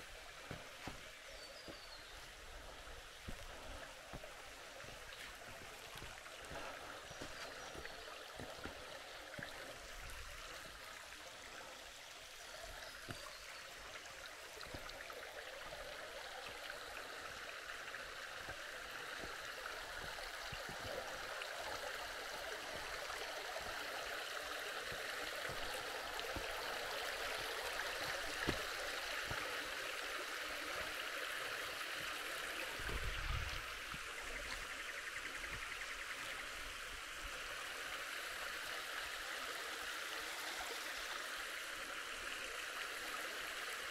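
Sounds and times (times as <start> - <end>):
creek water rushing: 0.0 - 43.9
footsteps: 0.4 - 9.6, 28.2 - 29.5.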